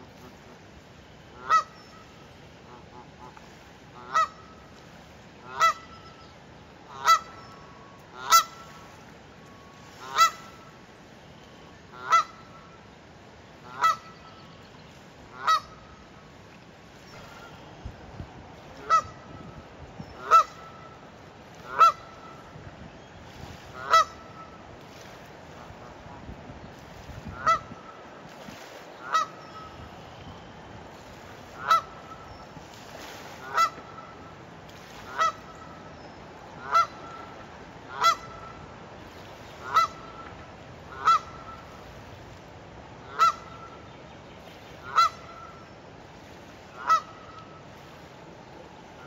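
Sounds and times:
goose honking: 1.4s - 1.7s, 4.0s - 4.4s, 5.4s - 5.9s, 6.9s - 7.4s, 8.2s - 8.7s, 10.0s - 10.7s, 11.9s - 12.6s, 13.6s - 14.1s, 15.3s - 15.8s, 18.8s - 19.3s, 20.2s - 21.0s, 21.6s - 22.5s, 23.8s - 24.6s, 27.4s - 27.9s, 29.0s - 29.7s, 31.6s - 32.1s, 33.4s - 34.2s, 35.1s - 35.6s, 36.6s - 37.3s, 37.9s - 38.5s, 39.6s - 40.2s, 40.9s - 41.6s, 43.0s - 43.8s, 44.8s - 45.6s, 46.8s - 47.4s.

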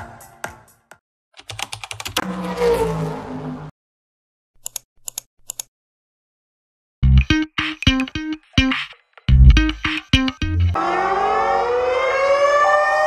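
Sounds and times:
mouse-click sounds: 4.6s - 5.7s.

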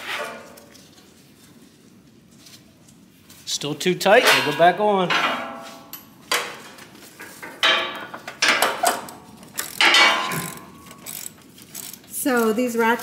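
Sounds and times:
ratchet clanking on metal: 7.2s - 12.7s.

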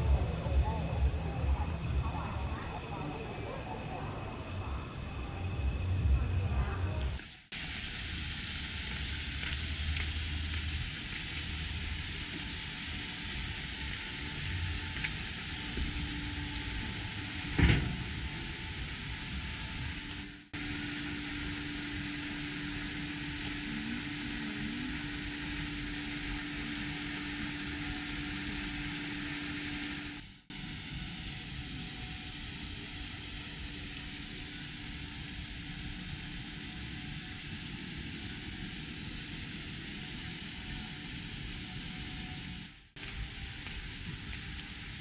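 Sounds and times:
rushing background noise: 0.0s - 7.2s
low hum: 0.0s - 7.4s, 8.2s - 43.5s.

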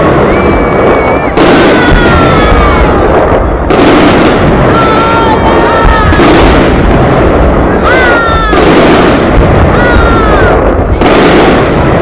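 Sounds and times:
descending whistling tones: 0.0s - 1.7s
fireworks bursting: 0.0s - 12.0s.

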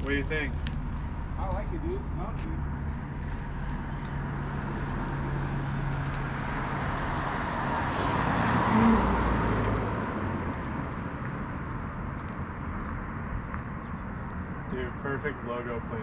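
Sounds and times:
low traffic hum: 0.0s - 16.0s
car passing close by: 4.5s - 11.2s.

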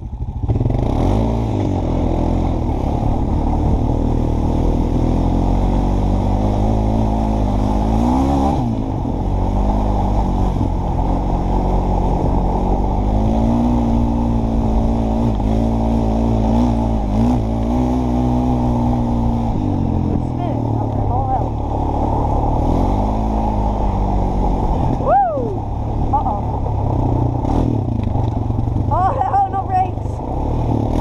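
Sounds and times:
atv engine running: 0.0s - 31.0s.

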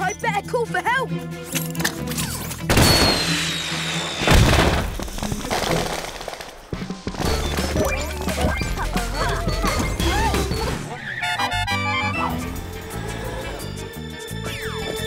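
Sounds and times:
background music: 0.0s - 15.0s
thin falling whistle: 2.8s - 4.5s.

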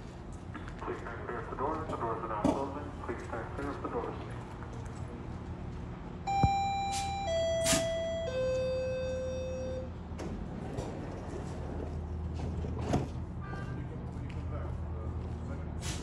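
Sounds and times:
idling train low hum: 0.0s - 16.0s
three-tone door warning chime: 6.3s - 10.1s.

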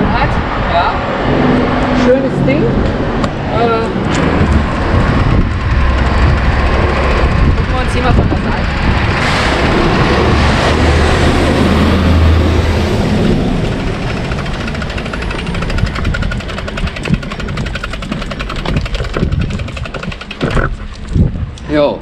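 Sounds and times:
vehicle passing: 0.0s - 21.0s
bicycle freewheel ticking: 4.7s - 9.1s, 13.3s - 20.6s.

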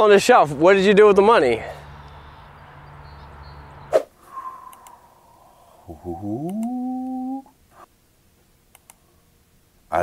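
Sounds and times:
faint low hum: 1.6s - 10.0s
man's held ooh: 4.4s - 7.6s
computer mouse clicks: 4.7s - 5.0s, 8.7s - 9.0s.

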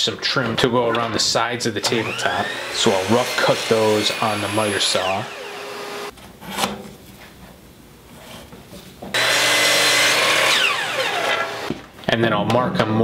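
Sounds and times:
electric miter saw cutting wood: 1.6s - 6.1s, 9.2s - 11.7s.

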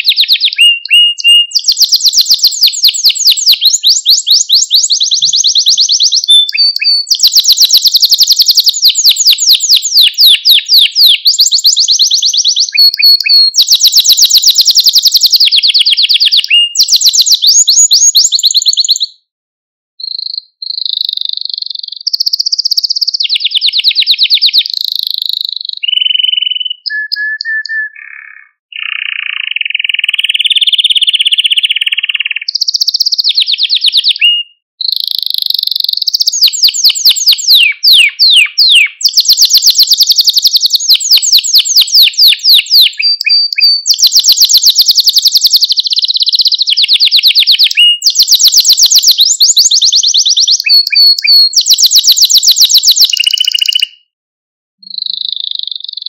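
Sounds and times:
canary singing trills: 0.0s - 19.2s, 20.0s - 54.1s, 54.8s - 56.0s.

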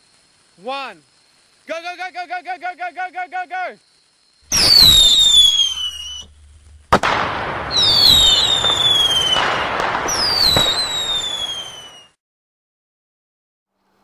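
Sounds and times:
fireworks crackling: 0.0s - 12.2s
fireworks whistling: 0.0s - 12.2s
firework bang: 4.5s - 12.1s.

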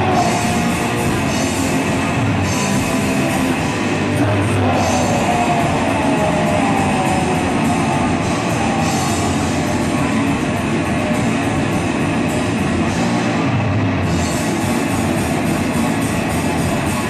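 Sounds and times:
bass guitar: 0.0s - 17.0s
drum kit: 0.0s - 17.0s
electric guitar: 0.0s - 17.0s.

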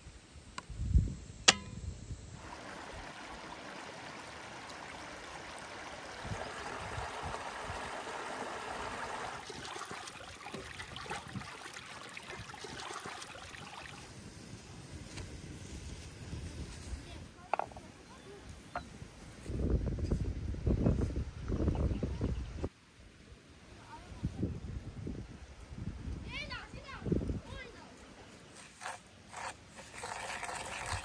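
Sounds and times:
sharp click: 1.4s - 1.8s
stream rushing over rocks: 2.4s - 10.7s.

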